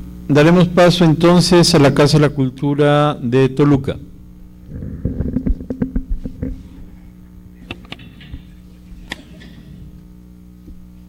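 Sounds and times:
electrical hum: 0.0 - 11.0
microphone handling knocks and clicks: 4.7 - 7.0.

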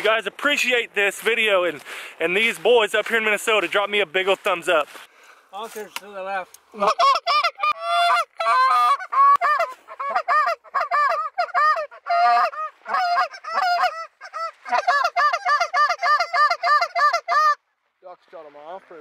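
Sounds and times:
canada goose honking: 6.8 - 17.6.

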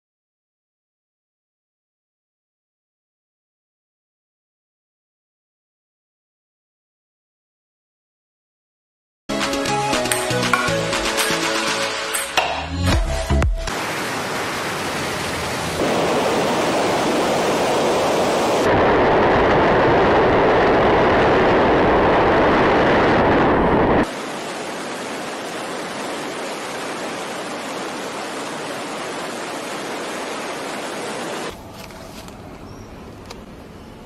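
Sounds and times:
wind rushing: 15.7 - 31.5.

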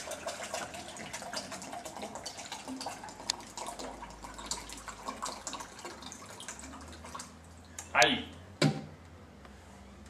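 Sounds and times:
water pouring and splashing: 0.0 - 7.7.

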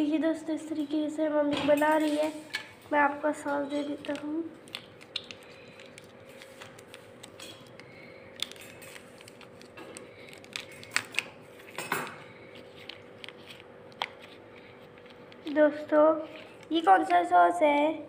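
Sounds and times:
faint steady hum: 0.0 - 18.0
plastic crinkling rustle: 3.8 - 17.3
sachets tapping on stone countertop: 4.0 - 15.4.

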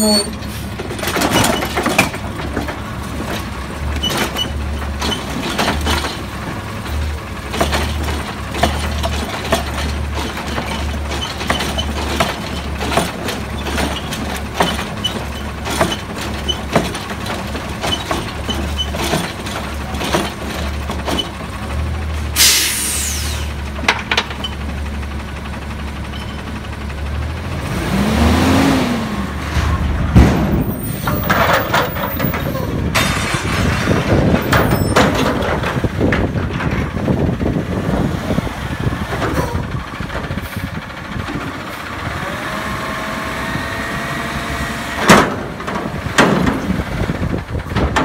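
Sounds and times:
hydraulic arm clanks and knocks: 0.0 - 21.4, 23.7 - 24.6, 30.1 - 37.4, 45.0 - 48.0
garbage truck engine throbbing: 0.0 - 48.0
hissing air burst: 22.4 - 23.5.

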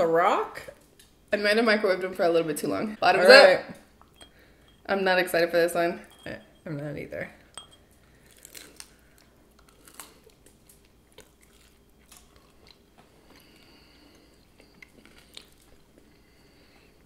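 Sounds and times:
people chewing crunchy food: 7.9 - 17.0.

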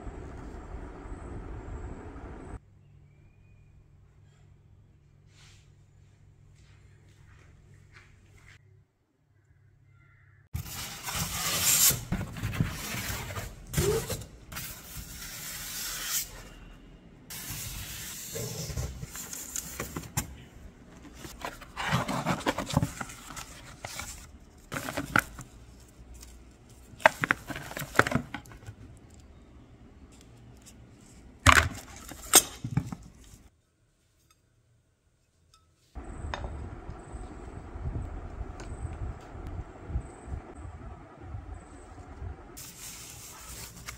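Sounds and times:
cardboard and foam rustling: 10.6 - 15.2, 17.3 - 28.9, 42.6 - 43.9.

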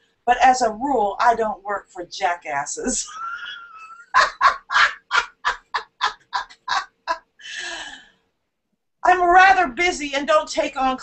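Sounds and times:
person laughing: 3.0 - 7.3
breathy wheeze: 7.4 - 8.3.

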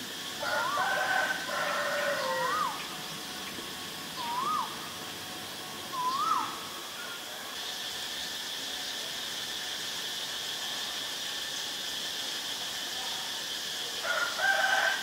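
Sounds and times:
steady high hiss: 0.0 - 15.0
owlet whistled call: 0.4 - 2.9, 4.2 - 5.0, 5.9 - 7.3.

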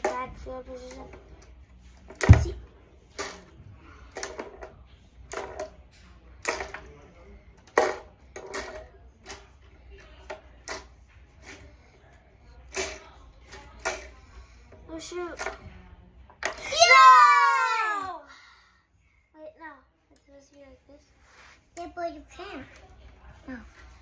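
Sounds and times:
plastic table football clacking: 6.4 - 6.9, 7.6 - 9.5, 12.7 - 14.1.

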